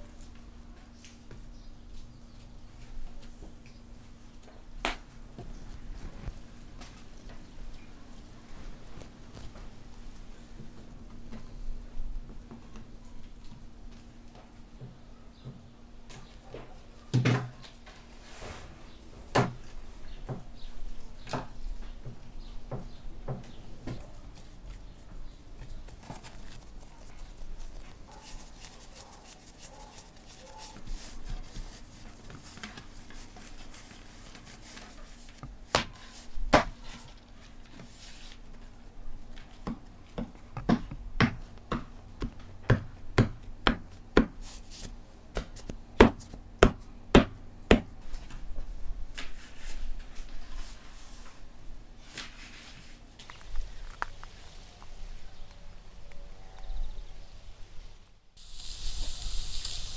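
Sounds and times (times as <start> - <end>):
hands working dough on wood: 12.2 - 51.4
bread stamp tapping dough: 39.6 - 44.4.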